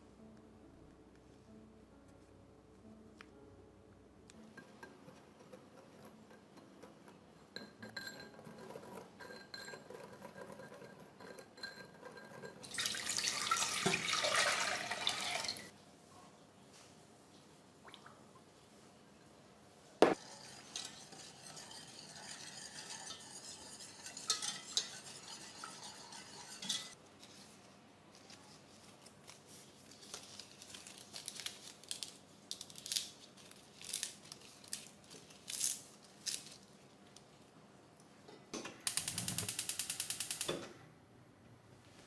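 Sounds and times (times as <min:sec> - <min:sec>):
utensils clinking against a pot: 0:04.4 - 0:15.6, 0:20.1 - 0:27.0.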